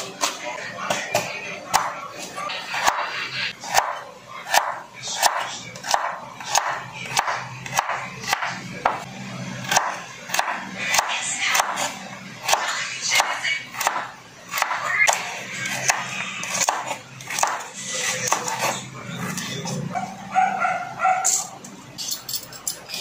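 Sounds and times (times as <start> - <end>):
knife chopping on wooden board: 3.7 - 9.0, 15.9 - 17.6.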